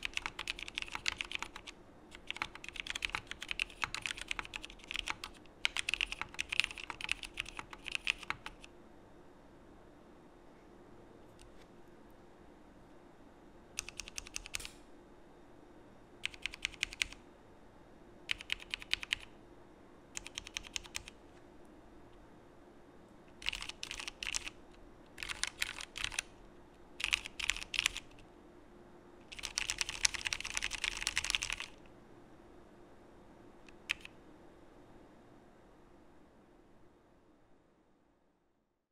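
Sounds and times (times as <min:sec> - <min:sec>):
mechanical keyboard typing: 0:00.0 - 0:08.7, 0:13.8 - 0:14.8, 0:16.2 - 0:17.2, 0:18.3 - 0:19.3, 0:20.2 - 0:21.2, 0:23.4 - 0:26.3, 0:27.0 - 0:28.2, 0:29.3 - 0:31.8, 0:33.7 - 0:34.1.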